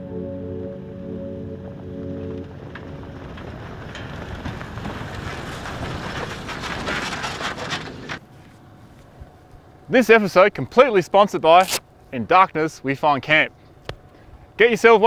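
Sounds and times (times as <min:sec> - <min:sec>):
vehicle engine driving past: 0:00.0 - 0:08.1.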